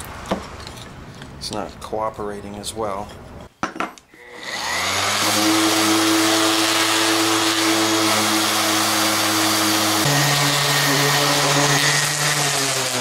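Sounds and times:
bench grinder motor running: 4.2s - 13.0s.

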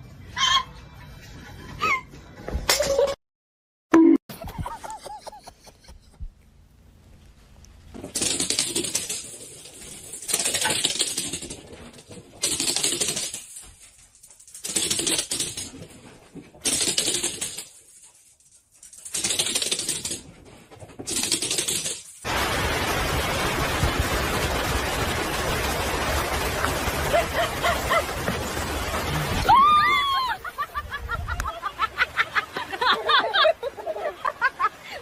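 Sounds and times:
puppies' claws clattering on wood: 7.9s - 22.2s.

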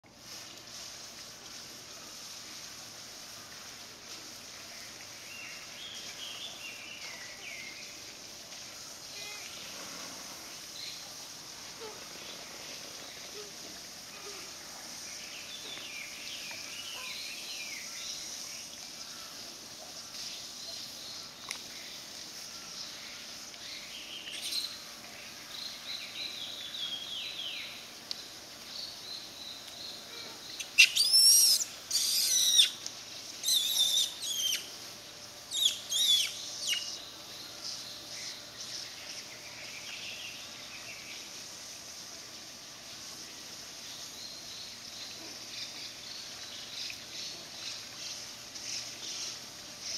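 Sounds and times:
shrill sweeping bird calls: 30.6s - 32.8s, 33.4s - 34.7s, 35.5s - 37.0s.

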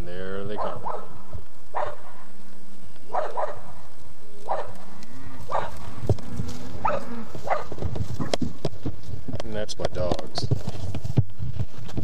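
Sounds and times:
dogs barking: 0.5s - 2.3s, 3.1s - 5.9s, 6.8s - 8.5s
cattle lowing: 3.1s - 9.4s.

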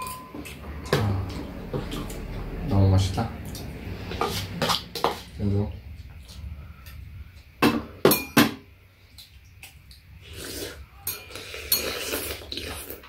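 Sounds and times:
metal utensils clinking on bowls: 0.0s - 2.1s, 11.0s - 12.3s.

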